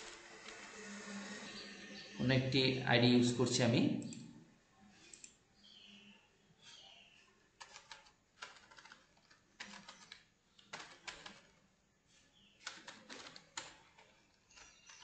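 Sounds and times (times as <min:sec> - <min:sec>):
typing on keyboard: 0:07.6 - 0:11.6, 0:12.6 - 0:15.0.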